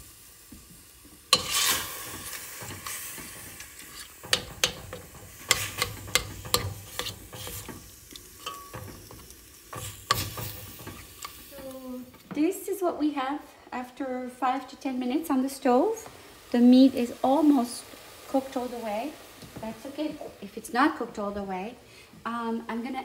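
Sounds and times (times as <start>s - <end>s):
meat sizzling in a pot: 0.0s - 23.0s
metal spoon scraping a pot: 1.3s - 3.0s, 3.6s - 9.2s.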